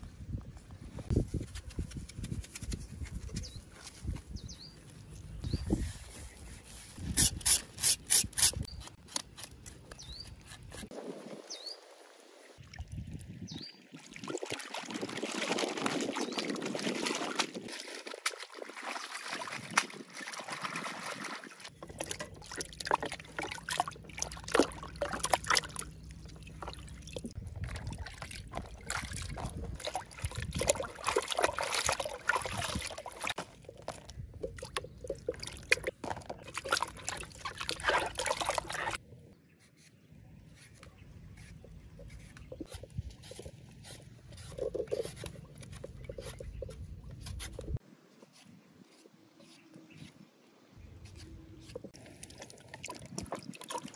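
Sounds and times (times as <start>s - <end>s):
water splashing and trickling: 10.4s - 39.0s, 41.1s - 47.9s, 50.6s - 53.9s
hands splashing in bucket of water: 14.0s - 39.0s.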